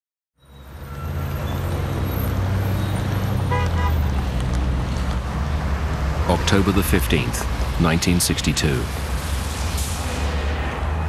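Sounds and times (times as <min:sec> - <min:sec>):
rumble of vehicle engines: 0:00.4 - 0:11.0
car horn toot: 0:03.5 - 0:04.0.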